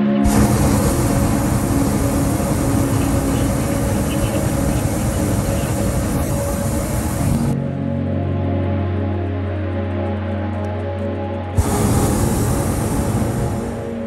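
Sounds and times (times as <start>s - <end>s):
airliner cabin noise: 0.0s - 7.6s, 11.6s - 14.0s.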